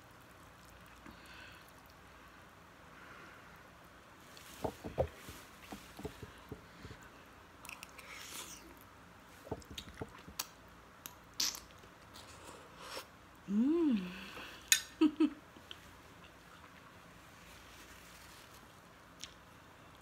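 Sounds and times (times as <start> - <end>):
person humming: 13.4 - 14.6.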